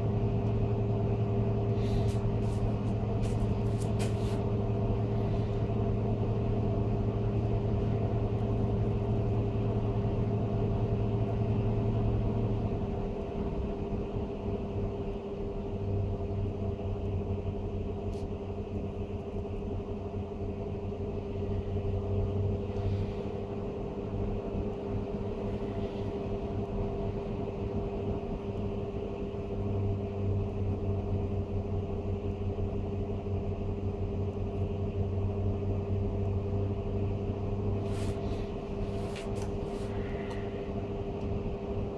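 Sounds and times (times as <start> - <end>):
fan running: 0.0 - 41.9.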